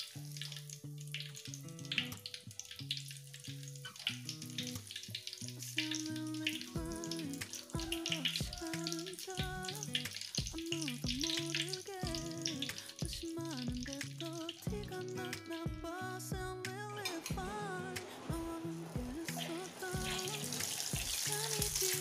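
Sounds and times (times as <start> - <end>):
oil sizzling in a wok: 0.0 - 15.3, 17.1 - 22.0
background music with beat: 6.6 - 22.0.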